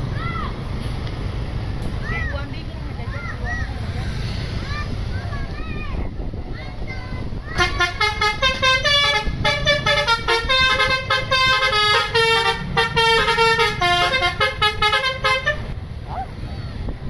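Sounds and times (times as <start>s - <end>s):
musical bus horn tune: 7.6s - 15.8s.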